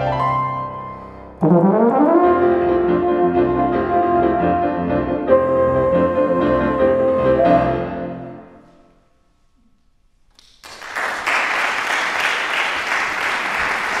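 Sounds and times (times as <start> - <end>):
audience applause: 10.6 - 14.0.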